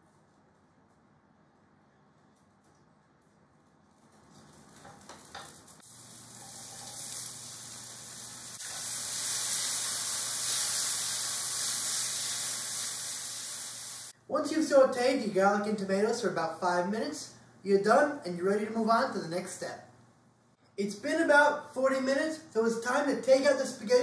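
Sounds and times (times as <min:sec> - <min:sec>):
garlic and tomatoes sizzling in oil: 0:04.8 - 0:14.2.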